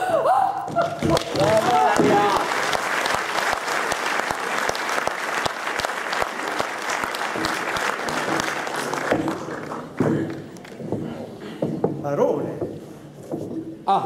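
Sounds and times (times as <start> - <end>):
audience applauding: 0.8 - 10.8.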